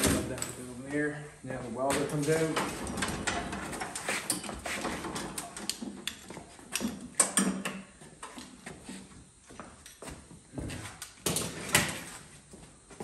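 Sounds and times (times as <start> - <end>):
welding cables clicking and rattling: 2.0 - 8.5.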